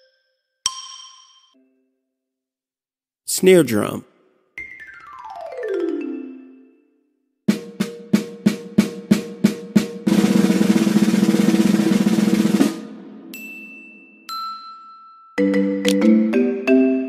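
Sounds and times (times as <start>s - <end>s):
snare drum strokes and roll: 7.5s - 13.2s.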